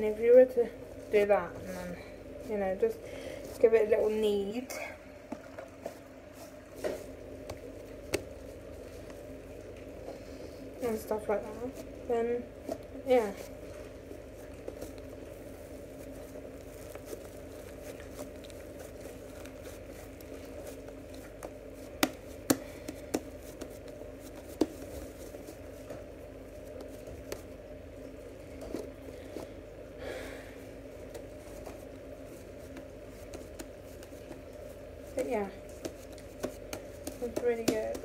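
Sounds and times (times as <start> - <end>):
slime squishing and crinkling: 12.6 - 29.6.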